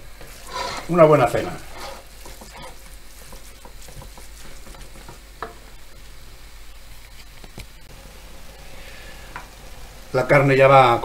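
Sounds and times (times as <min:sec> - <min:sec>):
meat sizzling in a pan: 0:00.0 - 0:07.0
wooden spoon scraping and tapping pan: 0:01.5 - 0:05.8.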